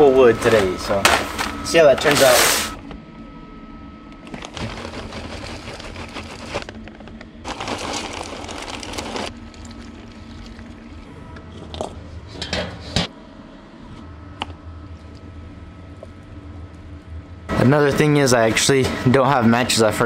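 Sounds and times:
wood chips poured into metal bowl: 7.5 - 9.8.

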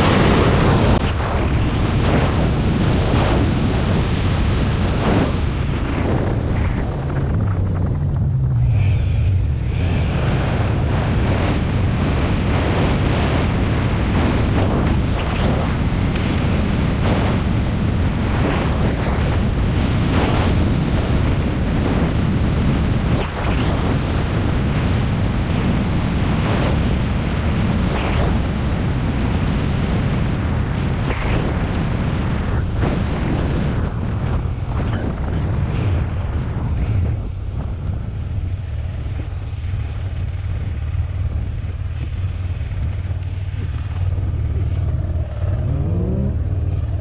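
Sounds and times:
wind buffeting microphone: 0.0 - 47.0
motorcycle engine: 5.3 - 19.6, 40.2 - 47.0.

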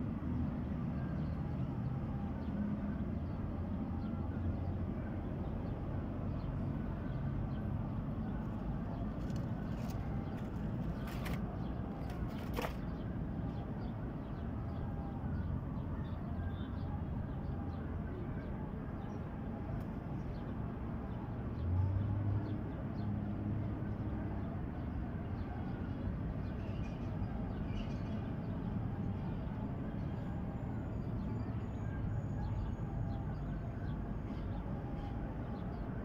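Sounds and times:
low outdoor rumble: 0.0 - 21.6.

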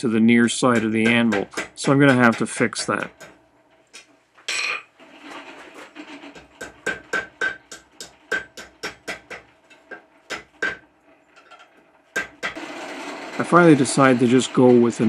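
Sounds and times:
hammer striking hot steel on anvil: 0.7 - 3.4, 6.6 - 10.8, 12.2 - 12.6.

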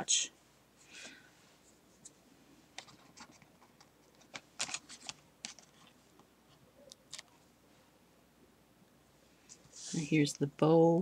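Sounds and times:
paper rustling: 2.8 - 6.0.

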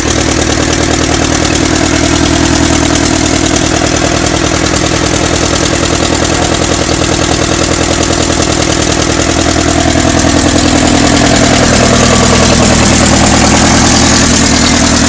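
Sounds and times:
tractor engine idling: 0.0 - 15.0.

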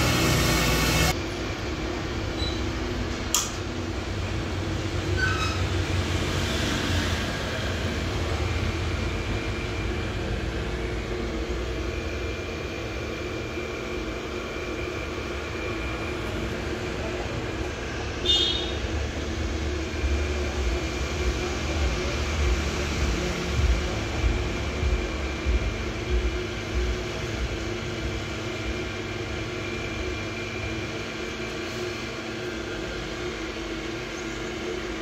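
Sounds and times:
electric motor humming: 0.0 - 1.2, 5.8 - 35.0
loud machine noise: 0.0 - 35.0
sharp click: 3.3 - 3.6.

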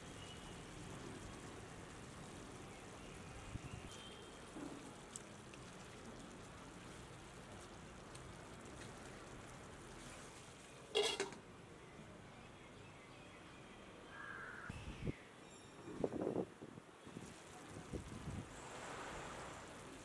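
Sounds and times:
soup sizzling in a pot: 0.0 - 11.4, 17.0 - 20.0.

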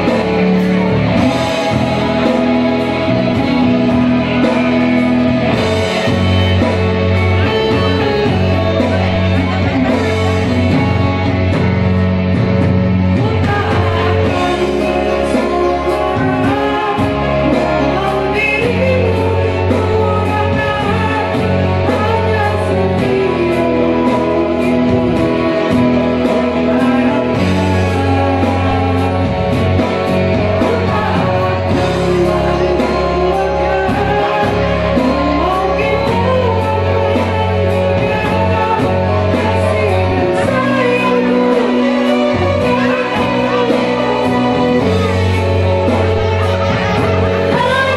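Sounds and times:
backing music with bass and guitar: 0.0 - 47.9
woman singing slow song: 13.1 - 47.9.

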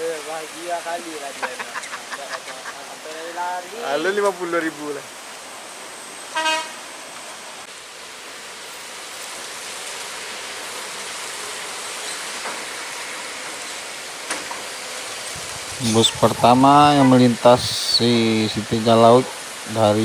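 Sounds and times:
rain and tyres on wet road: 0.0 - 20.0
vehicle horn toot: 6.3 - 6.8.

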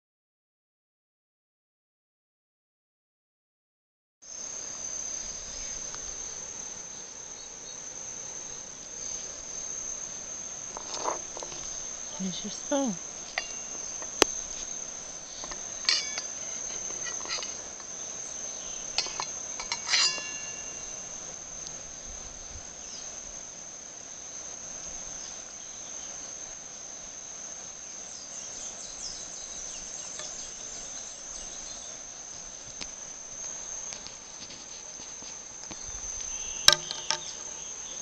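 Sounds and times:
high-pitched insect drone: 4.3 - 38.0
spoon knocking steel bowl: 13.4 - 14.2, 15.4 - 17.6, 19.0 - 21.0, 36.7 - 37.3.

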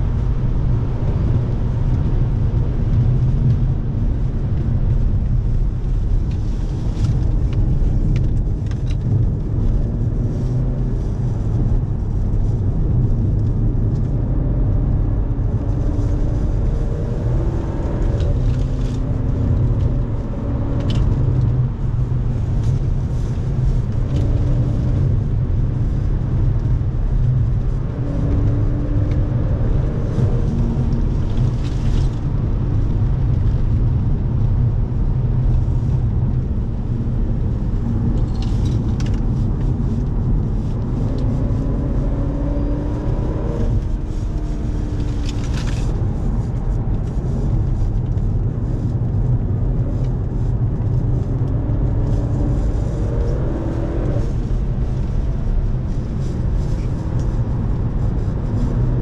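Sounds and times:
tyre and road rumble: 0.0 - 59.0
car engine revving: 5.0 - 34.1, 35.8 - 59.0.

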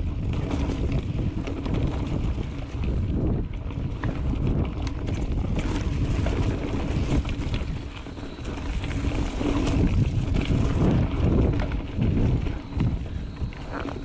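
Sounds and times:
bike clicks and rattles: 0.0 - 14.0
low rumble of bike riding: 0.0 - 14.0
wind buffeting microphone: 0.0 - 14.0.

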